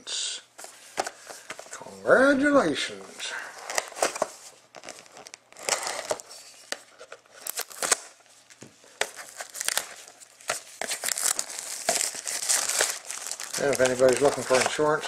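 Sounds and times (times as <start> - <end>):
plastic shrink-wrap tearing and crinkling: 3.6 - 6.6, 7.3 - 8.2, 9.0 - 15.0.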